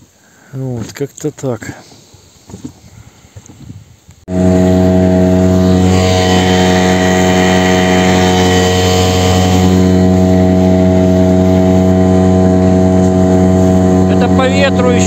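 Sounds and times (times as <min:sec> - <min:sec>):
outboard motor running: 0:04.3 - 0:15.0.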